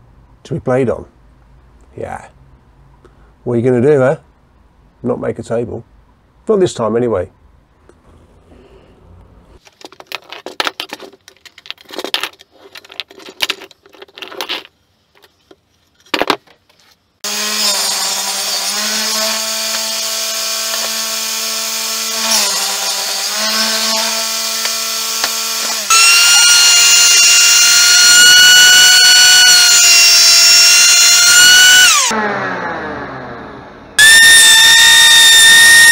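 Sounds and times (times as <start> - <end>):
benchtop jointer running: 17.2 - 32.9, 34.0 - 35.9
table saw cutting wood: 17.2 - 35.9.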